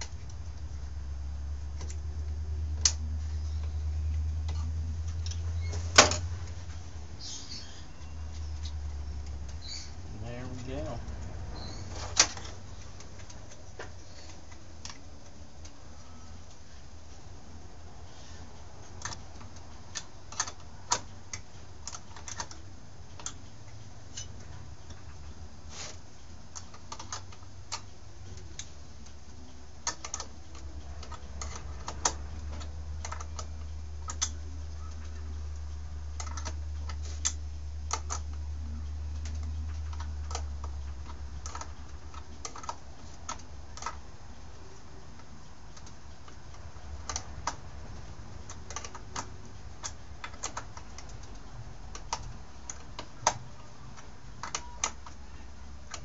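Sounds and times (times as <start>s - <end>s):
metal parts clicking and tapping: 18.6s - 38.5s, 39.1s - 56.0s.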